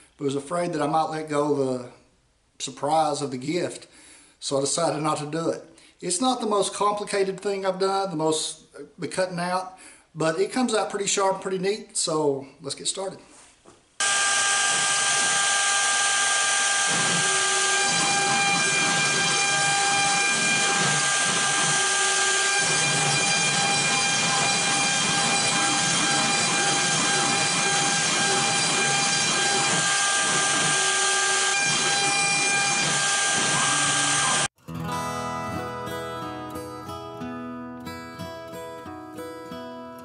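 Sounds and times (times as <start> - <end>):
router spindle whine: 14.0 - 34.5.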